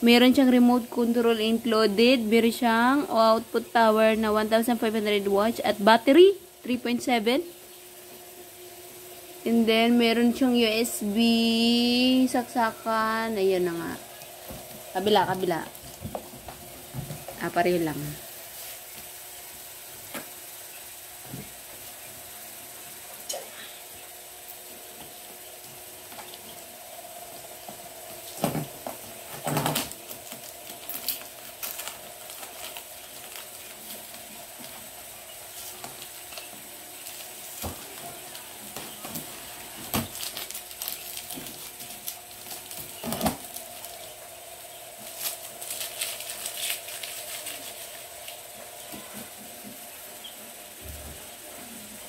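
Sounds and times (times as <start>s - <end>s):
faint steady hum: 0.0s - 52.0s
packing tape peeling off cardboard: 28.2s - 34.9s, 35.5s - 44.0s, 45.0s - 48.4s.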